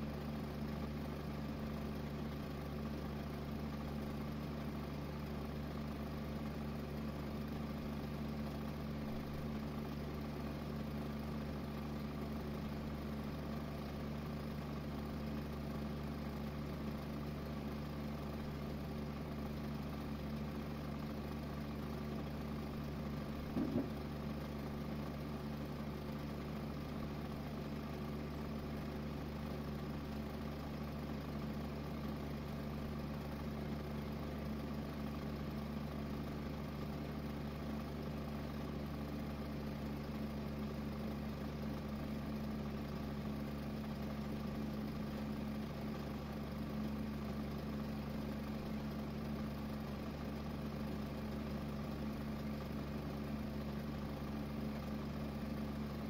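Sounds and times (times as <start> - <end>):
motor humming: 23.4 - 24.1.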